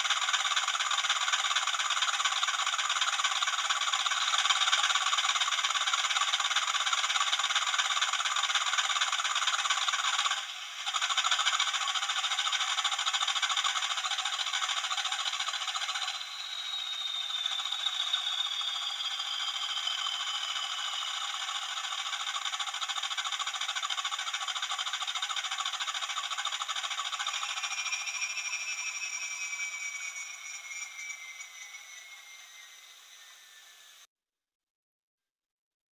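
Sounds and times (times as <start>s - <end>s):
thin rattly diesel engine sound: 0.0s - 34.1s
lower whine falling in pitch: 15.2s - 22.3s, 27.2s - 34.0s.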